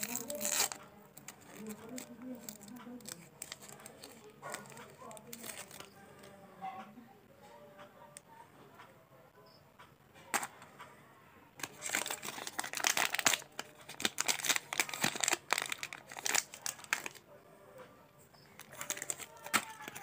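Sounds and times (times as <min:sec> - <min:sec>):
plastic wrapper crinkling: 0:00.0 - 0:06.0, 0:11.6 - 0:17.2, 0:18.4 - 0:20.0.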